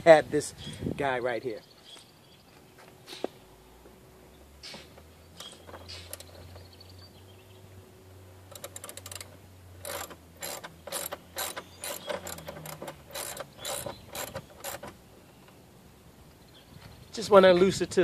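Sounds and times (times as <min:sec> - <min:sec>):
hand ratchet clicking: 0:08.5 - 0:14.9.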